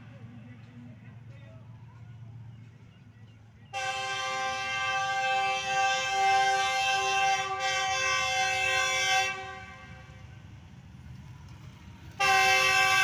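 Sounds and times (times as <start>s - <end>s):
locomotive air horn blast: 3.7s - 10.3s, 12.2s - 13.0s.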